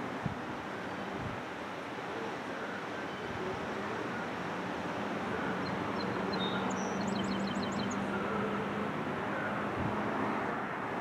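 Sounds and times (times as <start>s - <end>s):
wind buffeting microphone: 0.0s - 2.2s, 9.6s - 11.0s.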